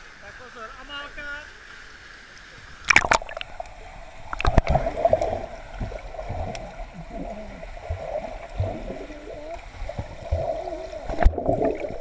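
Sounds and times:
muffled underwater churning and bubbling: 0:02.4 - 0:12.0.

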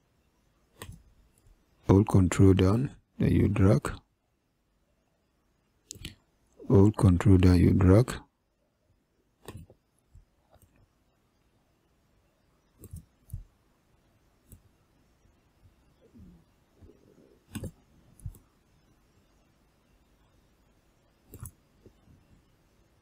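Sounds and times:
mouse and keyboard clicks: 0:00.7 - 0:01.1, 0:09.4 - 0:09.8, 0:12.8 - 0:13.5, 0:17.4 - 0:18.4, 0:21.3 - 0:21.6.

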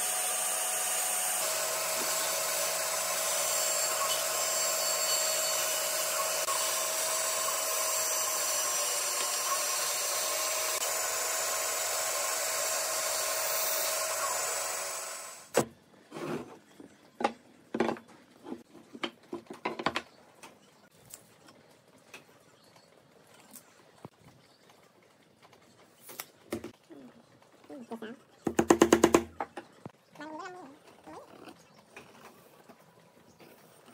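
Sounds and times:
bandsaw cutting wood: 0:00.0 - 0:15.6.

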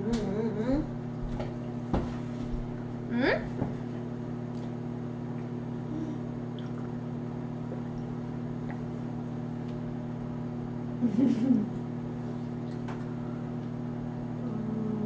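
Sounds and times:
wavering vocal sound: 0:00.0 - 0:00.9, 0:14.4 - 0:15.0
appliance electrical hum: 0:00.0 - 0:15.0.

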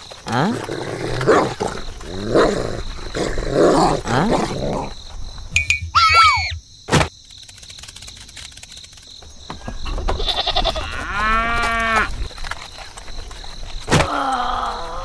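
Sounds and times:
farm animal call: 0:05.9 - 0:06.6
low falling animal call: 0:05.9 - 0:06.6.

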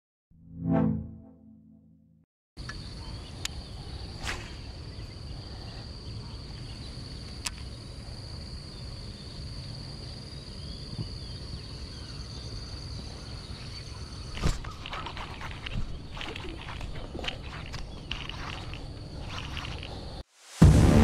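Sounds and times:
insect drone: 0:02.6 - 0:20.8.

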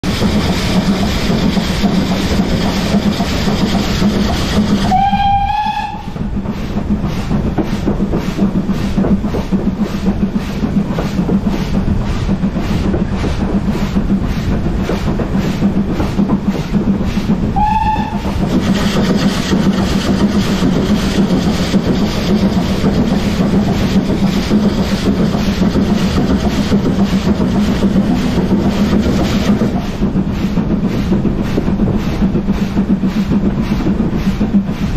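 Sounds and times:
steam locomotive running: 0:00.0 - 0:34.9
steam whistle blasts: 0:04.8 - 0:06.2, 0:17.6 - 0:18.3.

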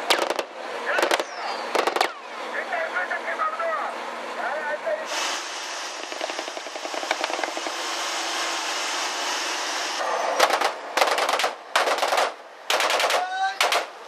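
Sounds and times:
automatic gunfire bursts: 0:00.0 - 0:02.1, 0:06.0 - 0:07.7, 0:10.4 - 0:14.0
wind: 0:00.0 - 0:14.0.

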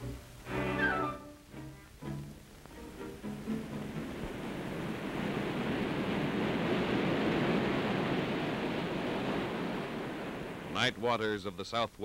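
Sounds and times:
ocean waves breaking: 0:02.5 - 0:11.2.

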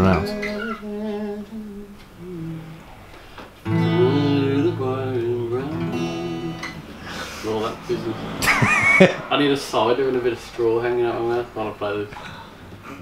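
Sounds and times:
acoustic guitar notes: 0:03.6 - 0:09.9.

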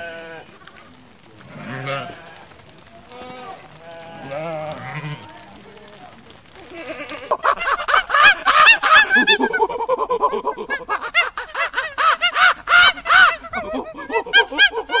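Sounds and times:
sheep bleating: 0:00.0 - 0:00.5, 0:01.4 - 0:02.5, 0:03.1 - 0:05.5, 0:06.7 - 0:07.3
monkeys chattering: 0:06.6 - 0:15.0.

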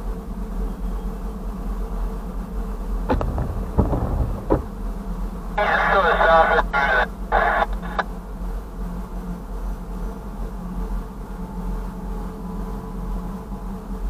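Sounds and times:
two-way radio transmission: 0:05.6 - 0:08.1.

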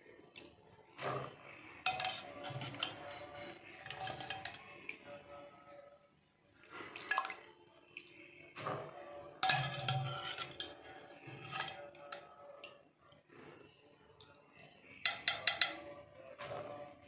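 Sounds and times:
metal clinking against pot: 0:01.8 - 0:05.0, 0:09.4 - 0:12.6, 0:14.9 - 0:16.0
splashing and dripping water: 0:06.8 - 0:08.9, 0:10.0 - 0:16.6.

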